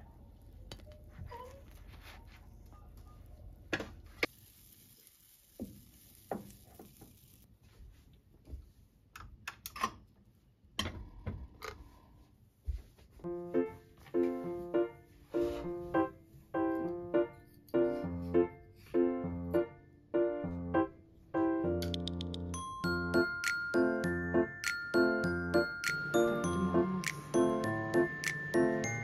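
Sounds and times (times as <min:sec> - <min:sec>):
soft hiss: 0:04.0 - 0:07.6
gentle piano music: 0:13.2 - 0:29.0.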